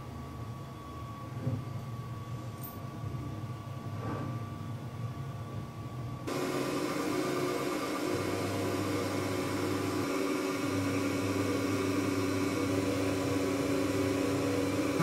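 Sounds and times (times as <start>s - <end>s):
milling spindle whine: 6.3s - 15.0s.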